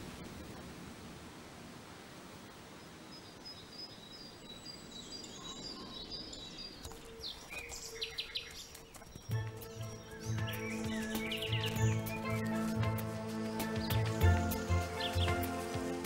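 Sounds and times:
birds chirping and singing: 3.4 - 16.0.

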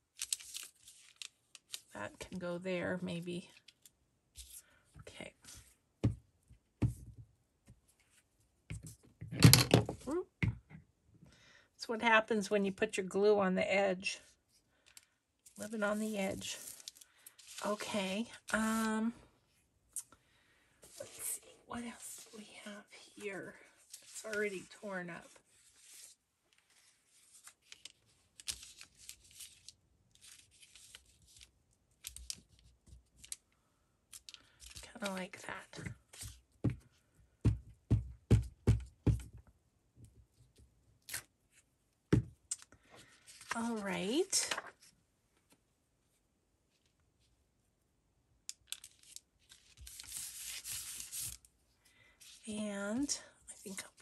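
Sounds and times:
paper rustling and crinkling: 0.1 - 1.9, 15.4 - 18.9, 23.6 - 33.4, 43.1 - 43.9, 48.7 - 51.4.

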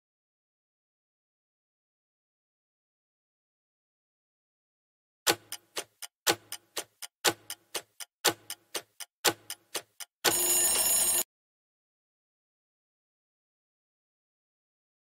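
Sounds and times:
clock ticking: 5.3 - 11.2
alarm sounding: 10.2 - 11.2.

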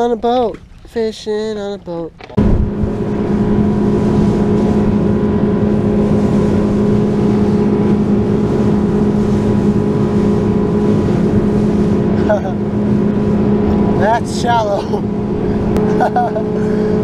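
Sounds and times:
outboard motor droning: 0.0 - 17.0
rush of wind and water: 0.0 - 17.0.

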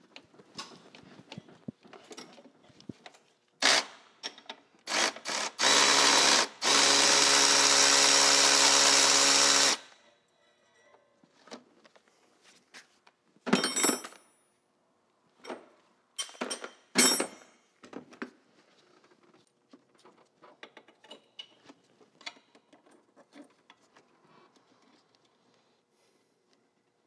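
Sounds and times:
metal tools clanking against engine: 16.2 - 17.4.

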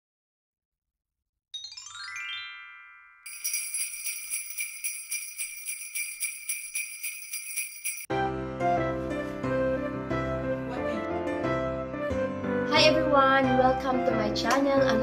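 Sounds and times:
sleigh bells jingling: 1.9 - 8.1
piano music: 8.0 - 15.0.

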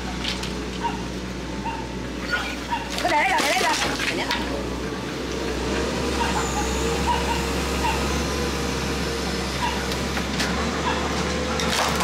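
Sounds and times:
excavator diesel engine running: 0.0 - 12.0
debris crashing down: 11.6 - 12.0.

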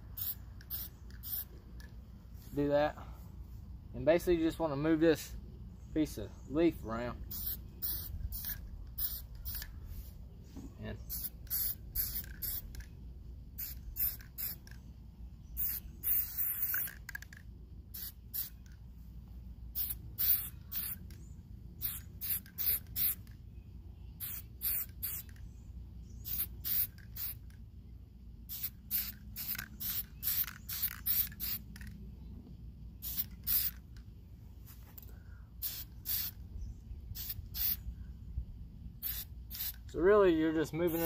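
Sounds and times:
spray paint can hissing: 0.1 - 1.9, 7.3 - 10.1, 11.0 - 13.0, 13.6 - 14.9, 15.5 - 18.8, 19.7 - 21.2, 21.8 - 23.3, 24.2 - 25.5, 26.1 - 27.6, 28.5 - 32.0, 33.0 - 34.0, 35.6 - 36.4, 37.1 - 37.8, 39.0 - 39.9.

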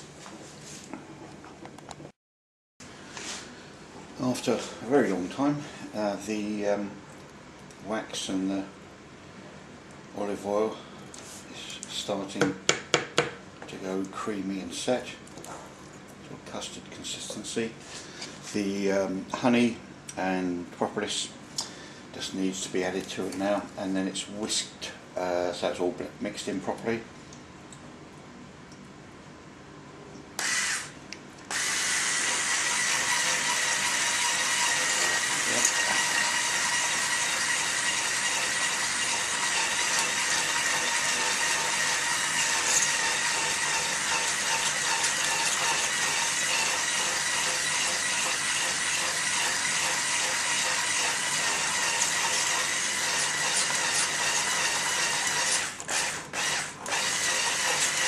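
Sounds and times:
electric hand whisk whining: 30.4 - 30.9, 31.5 - 58.0.

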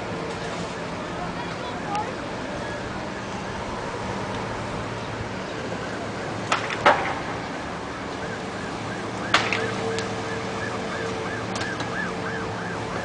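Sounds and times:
distant siren wailing: 0.0 - 13.0
sharp cracks from fire: 6.2 - 13.0.

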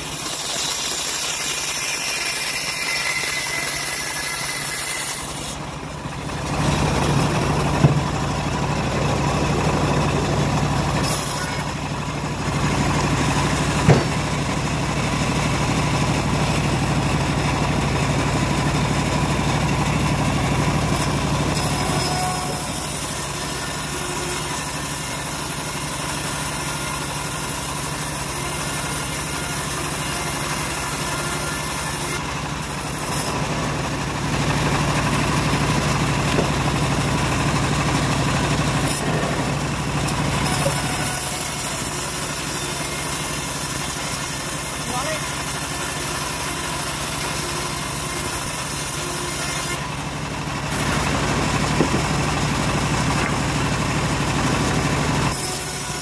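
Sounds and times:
bandsaw sawing wood: 0.0 - 56.0
sharp knock: 7.7 - 8.2, 13.8 - 14.3.

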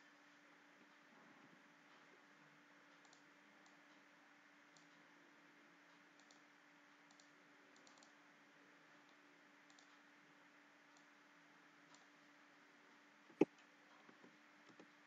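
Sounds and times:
faint steady hum: 0.0 - 15.0
computer mouse clicks: 2.9 - 4.0, 4.7 - 5.0, 5.9 - 8.2, 9.0 - 10.1, 10.9 - 11.1, 11.9 - 12.2.

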